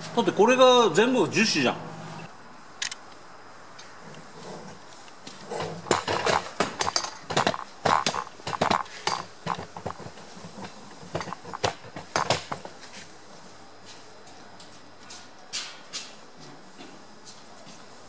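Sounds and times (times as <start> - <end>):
hard objects clinking and knocking: 5.6 - 12.7.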